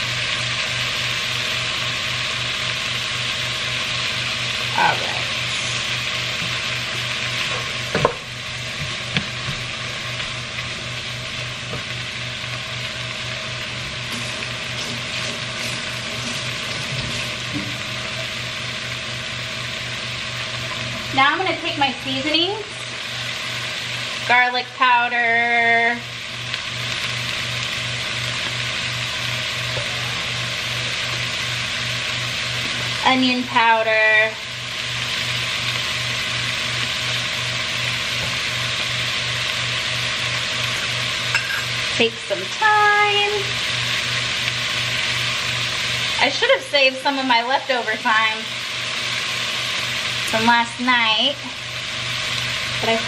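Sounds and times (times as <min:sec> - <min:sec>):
food sizzling in a pot: 0:00.0 - 0:53.0.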